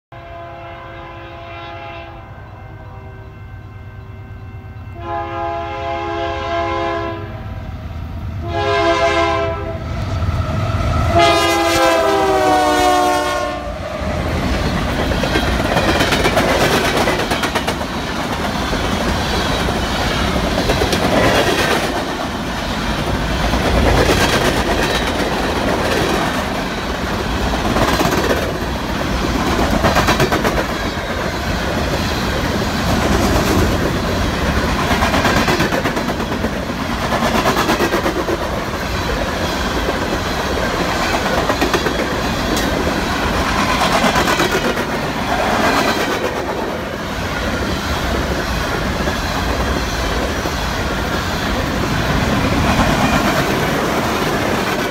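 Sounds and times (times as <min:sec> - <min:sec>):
locomotive air horn blasts: 0:00.1 - 0:07.6, 0:08.4 - 0:09.9, 0:11.0 - 0:13.8
locomotives rumbling by: 0:13.7 - 0:54.9
wheels clicking over rail joints: 0:14.4 - 0:46.6.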